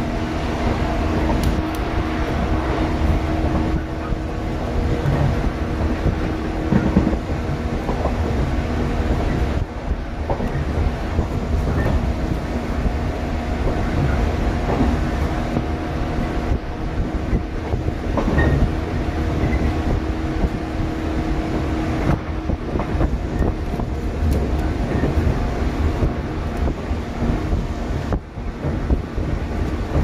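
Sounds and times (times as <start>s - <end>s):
train wheels rumbling on rail: 0.0s - 30.0s
wheels clicking over rail joints: 2.7s - 12.6s, 17.2s - 20.6s, 21.5s - 30.0s.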